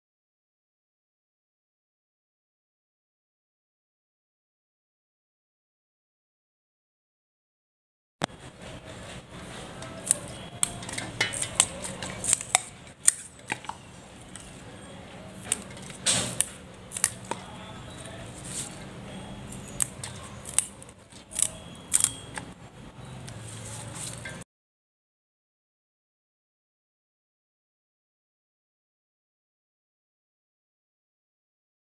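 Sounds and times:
stems snapping by hand: 10.0 - 13.8, 15.4 - 18.7, 19.6 - 22.5.

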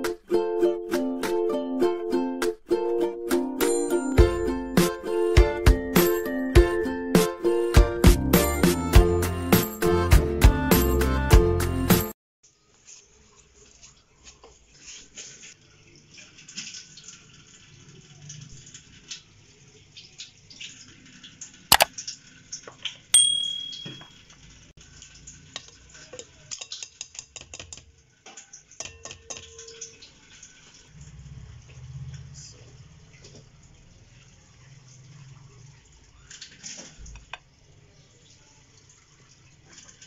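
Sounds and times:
bowl ringing clink: 23.2 - 24.2.

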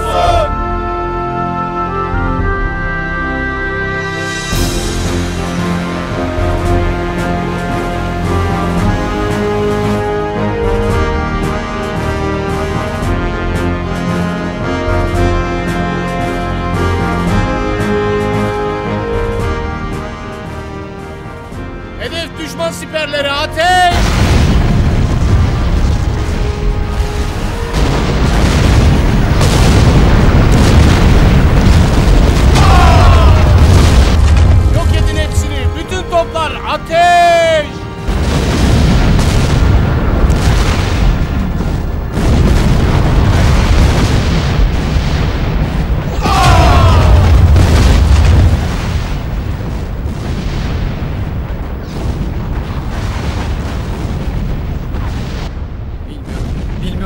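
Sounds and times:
sharp crack: 23.8 - 36.0, 38.0 - 57.0
shells exploding: 23.9 - 35.2, 38.0 - 57.0
warship guns firing: 23.9 - 35.5, 38.0 - 55.6.

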